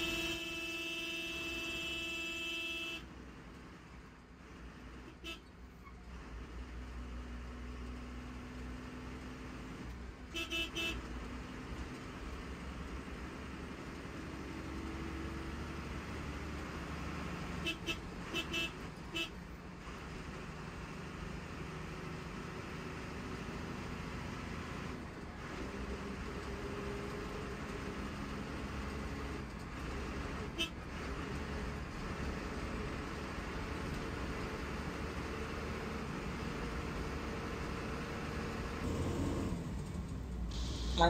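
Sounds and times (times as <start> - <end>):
vehicle horn toots: 0.0 - 3.1, 5.1 - 5.5, 10.3 - 11.1, 17.6 - 19.4, 30.5 - 30.8
bus engine and road rumble: 0.0 - 41.0.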